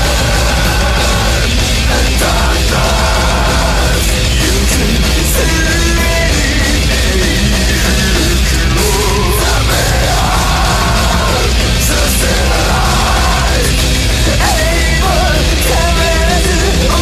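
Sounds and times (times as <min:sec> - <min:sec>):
metal band playing: 0:00.0 - 0:17.0
person singing or shouting: 0:00.0 - 0:17.0.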